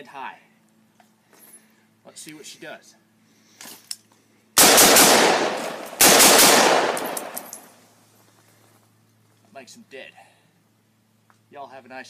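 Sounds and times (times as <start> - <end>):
rifle automatic fire: 4.6 - 7.6.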